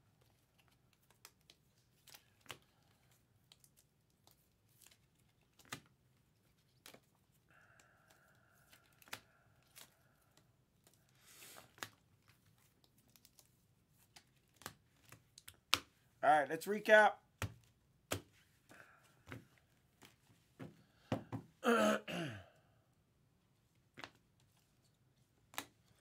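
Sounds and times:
trading cards in plastic sleeves: 0:00.0 - 0:20.5.

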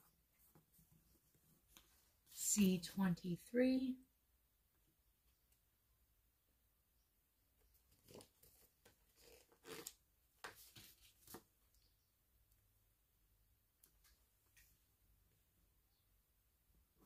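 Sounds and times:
paper rustling and crinkling: 0:07.9 - 0:11.5.

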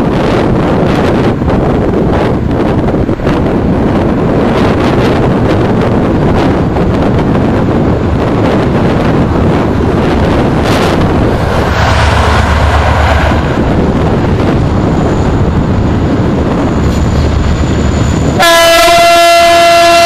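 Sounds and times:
diesel locomotive rumble: 0:00.0 - 0:20.0
locomotive horn blast: 0:18.3 - 0:20.0.

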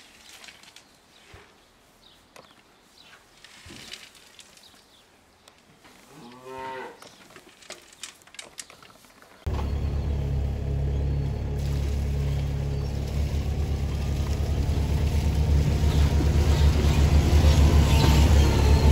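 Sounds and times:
calf mooing: 0:06.1 - 0:07.0.

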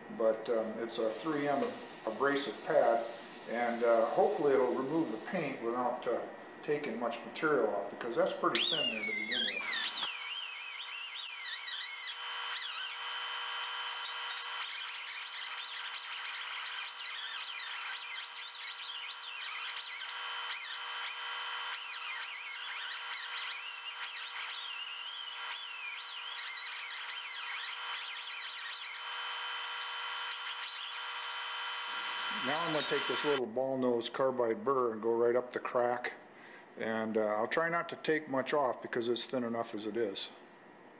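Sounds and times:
air die grinder whining on metal: 0:08.6 - 0:33.4.

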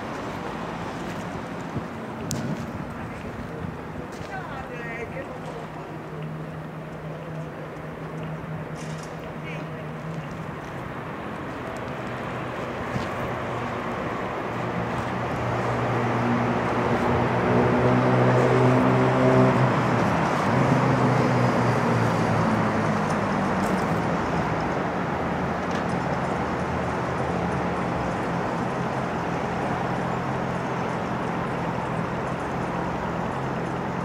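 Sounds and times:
street traffic: 0:00.0 - 0:34.0
vehicle engine passing: 0:12.0 - 0:31.1.

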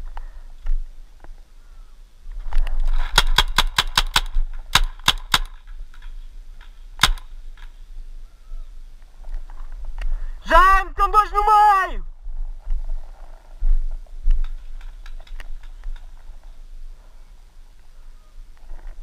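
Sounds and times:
paintball marker shots: 0:03.1 - 0:05.6, 0:07.0 - 0:07.7.

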